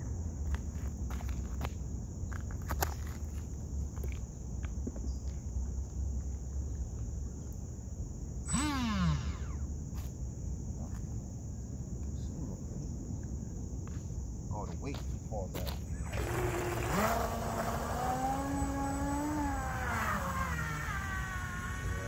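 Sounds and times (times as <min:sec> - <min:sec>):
high-pitched insect chirring: 0:08.4 - 0:10.1, 0:15.6 - 0:22.0
falling whine: 0:08.5 - 0:09.7, 0:16.0 - 0:22.0.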